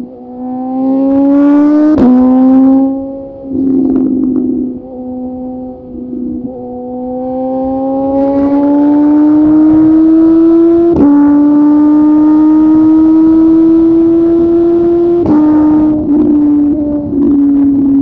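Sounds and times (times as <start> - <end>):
motorcycle engine accelerating: 0.0 - 18.0
wind rush over microphone: 13.5 - 18.0.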